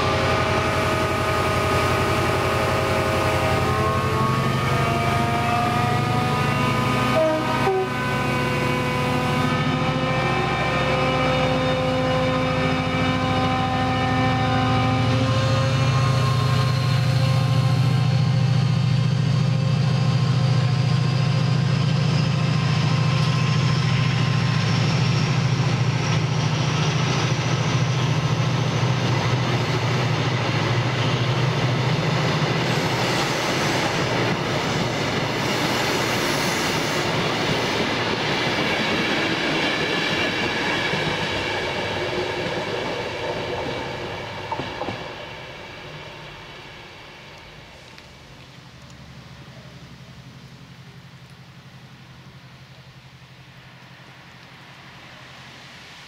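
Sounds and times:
diesel locomotive engine hum: 0.0 - 56.0
train wheels rattling on rails: 15.2 - 47.8.

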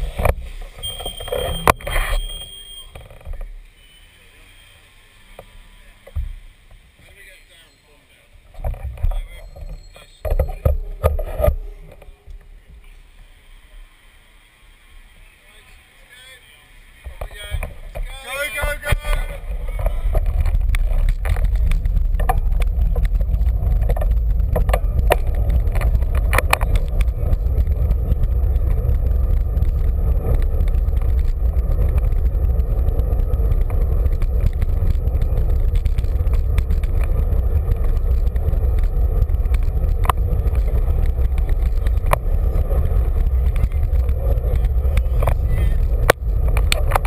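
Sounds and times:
wind and road rumble: 0.0 - 47.0
bike clicks and rattles: 18.7 - 47.0.

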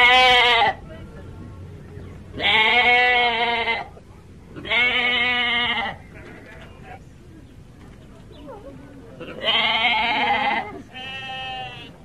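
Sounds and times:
lamb bleating: 2.4 - 3.9, 4.6 - 6.4, 9.2 - 11.9.

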